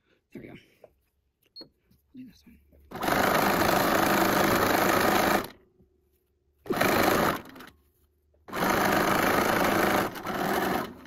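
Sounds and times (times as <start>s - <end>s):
sewing machine stitching: 2.9s - 5.6s, 6.7s - 7.7s, 8.5s - 11.0s.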